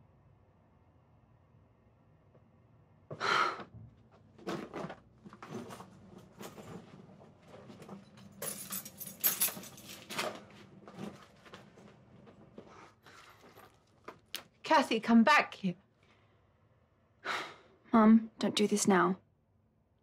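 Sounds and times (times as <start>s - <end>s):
rustling and clinks of belongings: 4.5s - 14.3s.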